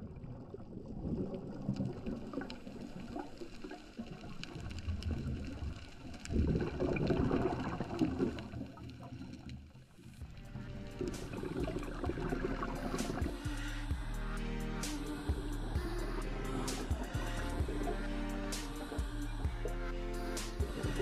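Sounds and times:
gurgling rush of exhaled bubbles: 0.0 - 9.8, 10.5 - 13.9.

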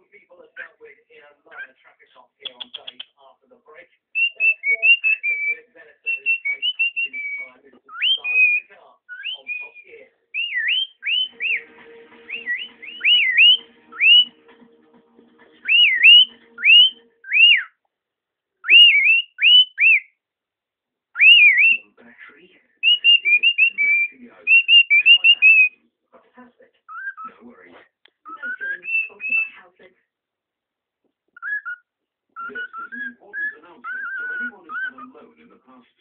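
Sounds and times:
cockatiel whistling: 4.2 - 14.4, 15.6 - 17.7, 18.6 - 20.1, 21.2 - 21.8, 22.8 - 25.8, 26.9 - 27.3, 28.3 - 29.6, 31.4 - 31.8, 32.4 - 35.1.

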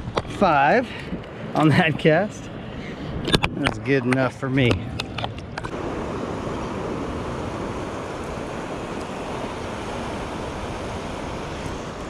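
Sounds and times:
ocean surf: 0.4 - 12.0
wind on microphone: 2.4 - 12.0.

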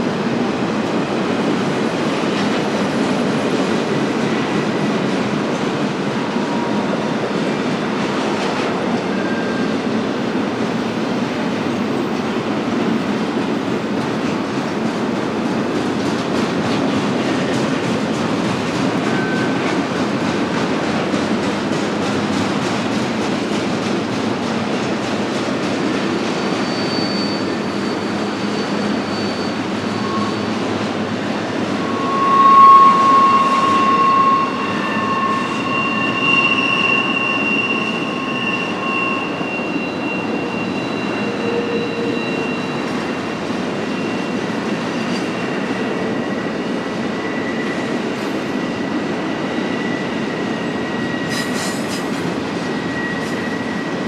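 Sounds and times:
freight train cars rumbling: 0.0 - 54.0
high-pitched wheel squeals: 8.8 - 9.9, 18.9 - 20.0, 26.3 - 54.0.

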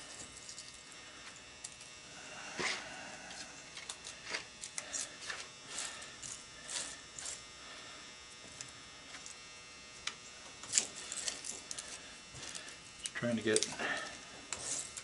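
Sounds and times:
faint electrical buzz: 0.0 - 15.0
wire strands rustling into bucket: 10.6 - 15.0.

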